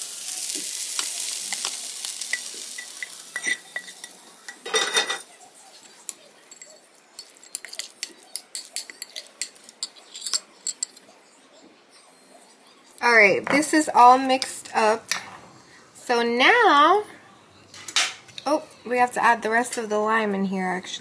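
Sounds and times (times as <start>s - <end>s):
corn sizzling: 0.0s - 10.8s
metal spoon scraping glass bowl: 6.5s - 11.0s.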